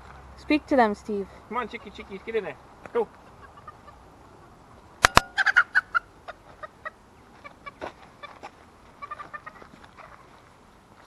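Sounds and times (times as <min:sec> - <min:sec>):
chicken clucking: 0:03.3 - 0:04.0, 0:05.3 - 0:10.3
chicken squawking: 0:03.3 - 0:04.0, 0:05.3 - 0:08.4.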